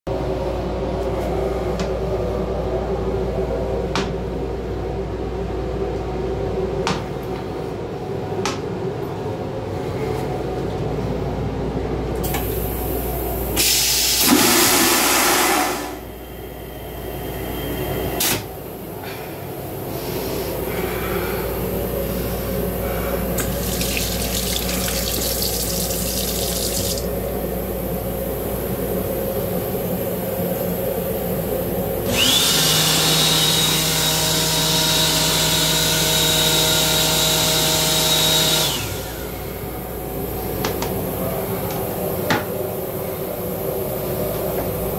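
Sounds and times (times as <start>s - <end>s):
moving train hum: 0.1s - 13.6s, 38.6s - 44.9s
toilet flushing: 13.6s - 16.0s, 23.4s - 27.1s
sink faucet running: 23.4s - 27.1s.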